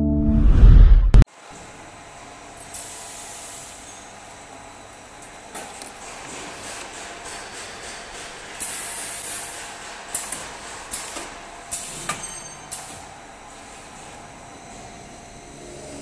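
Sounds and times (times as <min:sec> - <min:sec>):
long air hiss: 0:02.7 - 0:04.0
short air blasts with clacks: 0:06.0 - 0:13.0.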